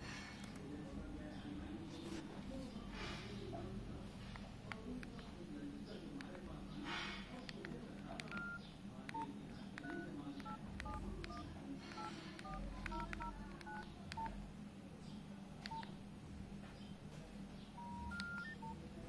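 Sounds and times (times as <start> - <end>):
electronic keypad beeps: 8.3 - 14.4, 17.8 - 18.8.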